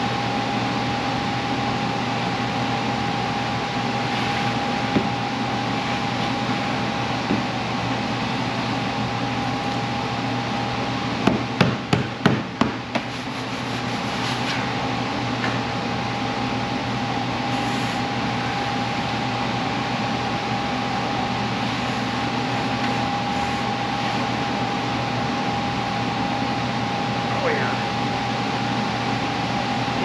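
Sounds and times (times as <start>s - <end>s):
machine hum with whine: 0.0s - 30.0s
sharp wooden knocks: 11.2s - 13.1s.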